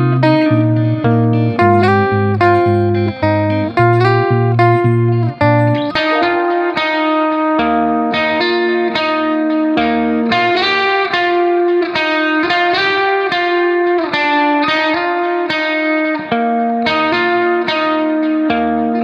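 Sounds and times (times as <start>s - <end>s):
low bass line: 0.0s - 6.6s
plucked guitar melody: 0.0s - 19.0s.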